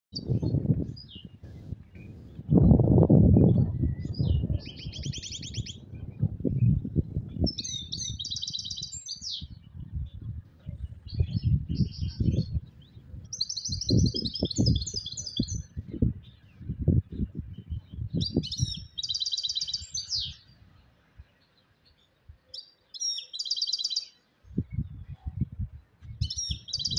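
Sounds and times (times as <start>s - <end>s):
finch singing twittering trills: 0.2s - 20.7s, 21.3s - 26.9s.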